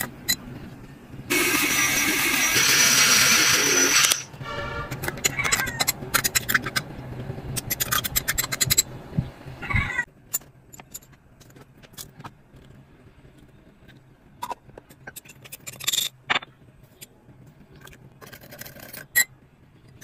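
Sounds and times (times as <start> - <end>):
milk frother whirring: 1.3 - 4.3.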